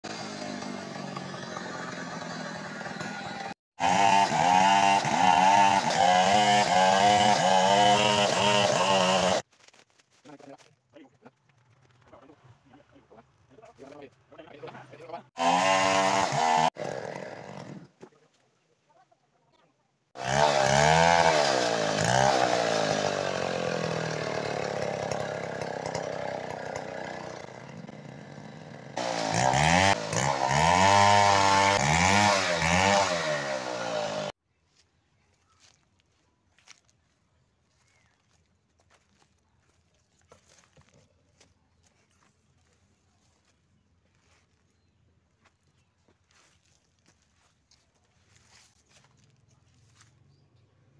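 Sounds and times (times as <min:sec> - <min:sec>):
chainsaw cutting log: 0:00.0 - 0:09.5, 0:15.3 - 0:18.2, 0:20.2 - 0:34.4.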